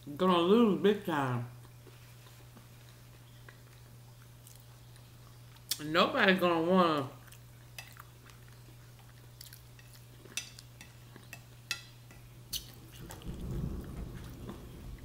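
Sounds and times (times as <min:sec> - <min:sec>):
faint steady hum: 0:00.0 - 0:15.0
low rumbling thump: 0:13.2 - 0:15.0.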